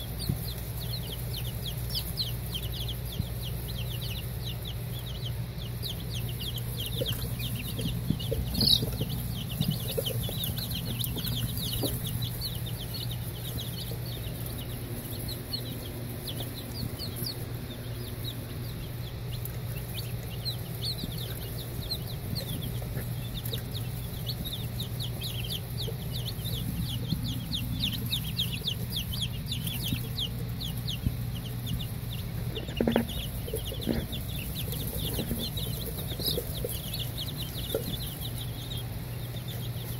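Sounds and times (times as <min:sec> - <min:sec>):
baby chicks peeping: 0:00.0 - 0:39.9
steady low hum: 0:00.0 - 0:39.9.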